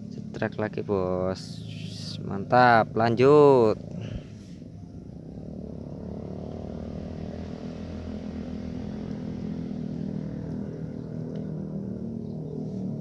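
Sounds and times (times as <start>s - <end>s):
motor running with low drone: 0.0s - 13.0s.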